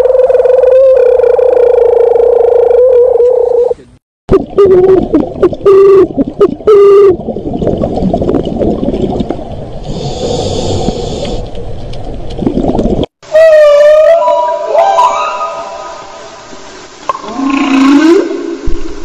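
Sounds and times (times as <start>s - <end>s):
water rushing with bubbling: 4.3s - 13.1s.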